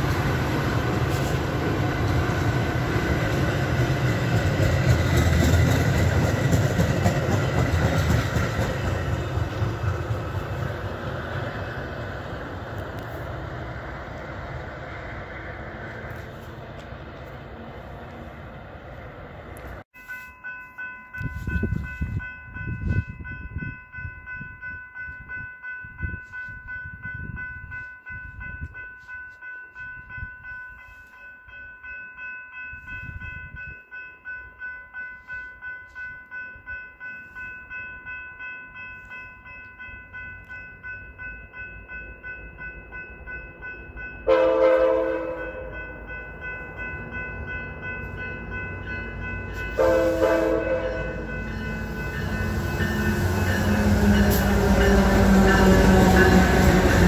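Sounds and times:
train rumble: 0.0s - 19.9s, 37.7s - 57.0s
crossing bells ringing: 19.9s - 57.0s
locomotive horn blasts: 44.3s - 45.8s, 49.8s - 51.3s.

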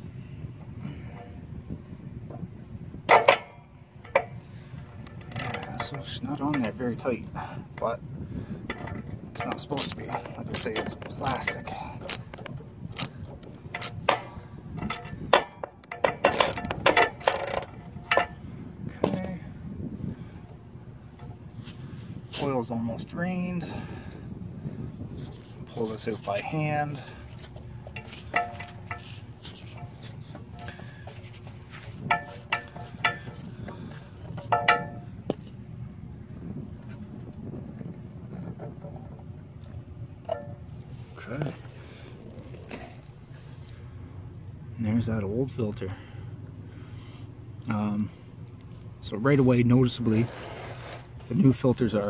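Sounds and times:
ratchet wrench clicking: 5.0s - 5.7s, 15.8s - 18.3s.

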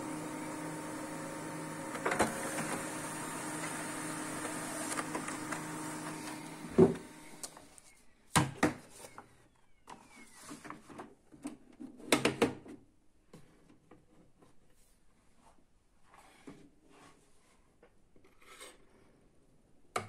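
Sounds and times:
laser printer hum: 0.0s - 7.7s
printer thump: 1.9s - 3.0s, 4.4s - 7.2s.

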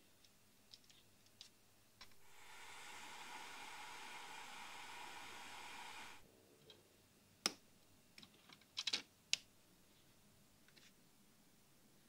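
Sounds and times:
heat gun hissing: 2.0s - 6.2s.

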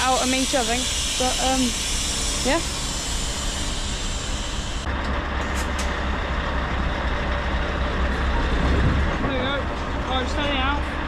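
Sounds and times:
diesel engine idling: 0.0s - 11.0s
short high hisses: 0.5s - 4.9s.

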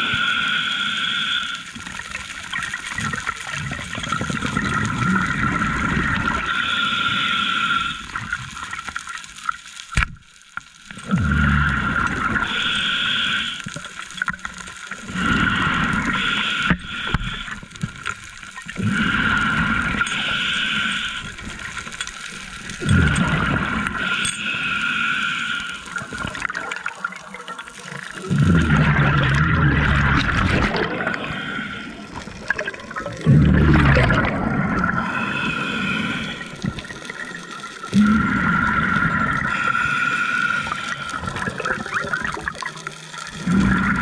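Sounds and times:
regulator inhale hiss with whistle: 0.0s - 1.7s, 6.5s - 8.2s, 12.4s - 13.7s, 15.2s - 17.6s, 18.9s - 21.4s, 24.0s - 26.0s, 35.0s - 36.6s, 39.5s - 41.2s
exhaled bubbles rushing: 1.8s - 6.6s, 11.0s - 24.2s, 25.9s - 39.9s, 40.6s - 44.0s.

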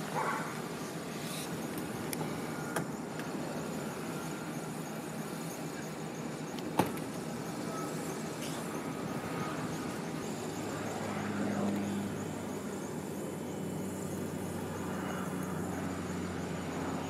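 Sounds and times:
vehicles idling hum: 0.0s - 17.0s
van door slamming: 6.7s - 7.1s.

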